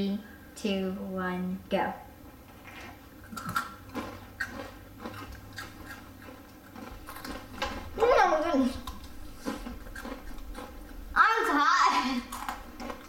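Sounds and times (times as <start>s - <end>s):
crunching and chewing snacks: 2.7s - 11.1s, 12.2s - 13.0s.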